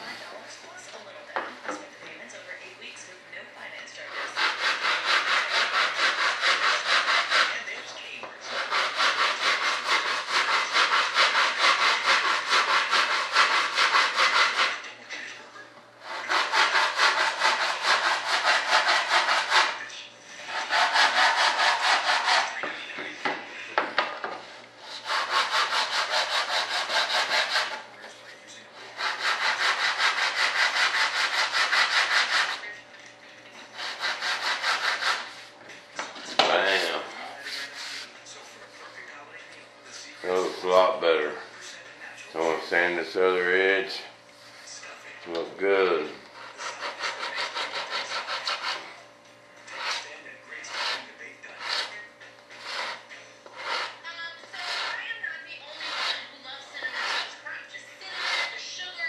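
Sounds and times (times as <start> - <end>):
sandpaper rasping: 4.1 - 7.7, 8.4 - 14.9, 16.0 - 22.6, 24.8 - 27.9, 28.8 - 32.7, 33.7 - 35.5, 36.7 - 38.1, 46.4 - 48.9, 49.7 - 57.4, 58.0 - 58.6.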